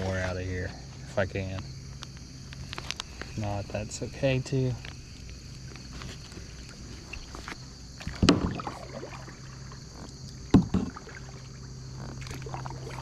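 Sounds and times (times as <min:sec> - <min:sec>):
kayak paddle splashing in water: 0:05.9 - 0:13.0.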